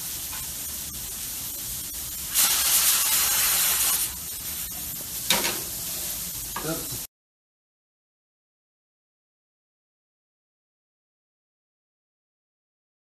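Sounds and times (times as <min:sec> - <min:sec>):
frying pan sizzling: 0:00.0 - 0:07.1.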